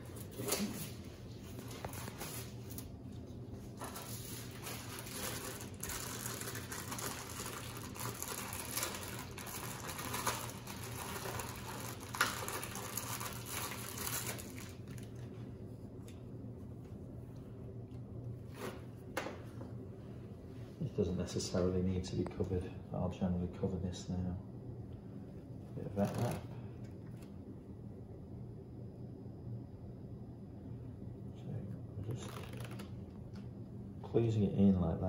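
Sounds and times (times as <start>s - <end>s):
steady low hum: 0.0s - 35.0s
bandage packaging rustling: 3.7s - 15.1s, 26.0s - 26.4s, 32.2s - 32.9s.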